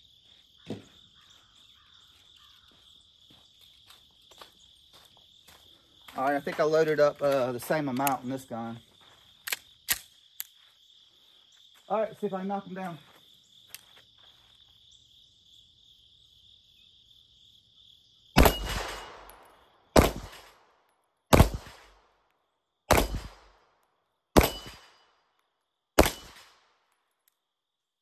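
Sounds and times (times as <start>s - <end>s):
pistol shots hitting steel plates: 18.4s - 20.6s, 22.9s - 23.5s, 24.4s - 25.1s, 26.0s - 26.6s.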